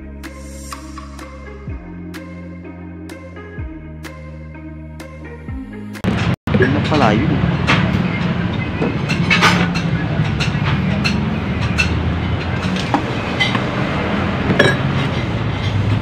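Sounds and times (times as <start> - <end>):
low engine-like hum: 6.5 - 16.0
metal parts and tools clinking: 14.5 - 15.8.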